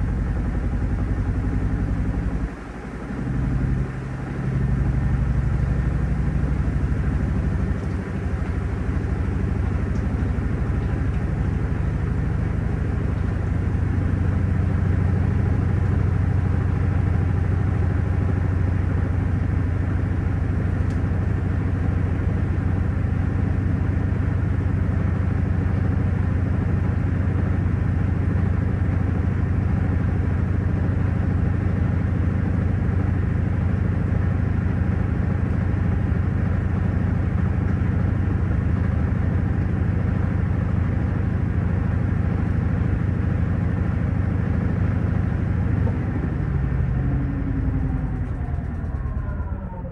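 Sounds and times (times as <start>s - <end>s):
washing machine spinning: 23.8s - 49.9s.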